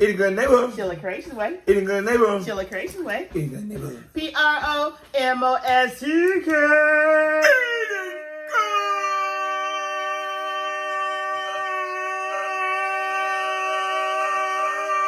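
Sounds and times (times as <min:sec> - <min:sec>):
people howling: 0:07.4 - 0:15.0.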